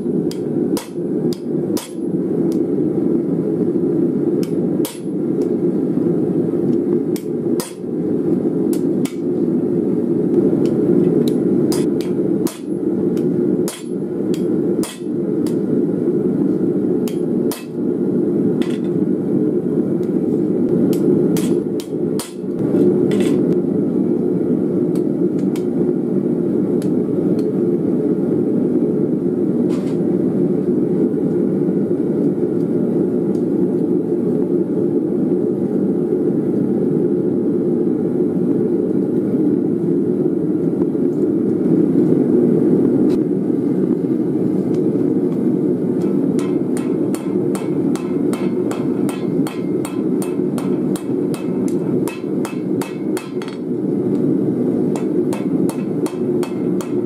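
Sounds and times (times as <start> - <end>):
hammer striking hot steel on anvil: 0.0 - 2.6, 4.4 - 5.6, 7.1 - 7.9, 8.7 - 9.3, 10.6 - 15.7, 17.0 - 17.9, 18.6 - 19.0, 20.9 - 23.5, 46.0 - 53.8, 54.9 - 57.0.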